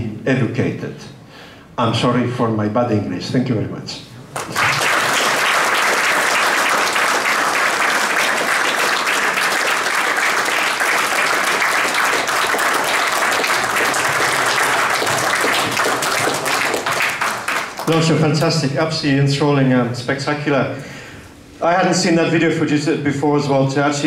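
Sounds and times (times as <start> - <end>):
audience applauding: 4.3 - 18.2.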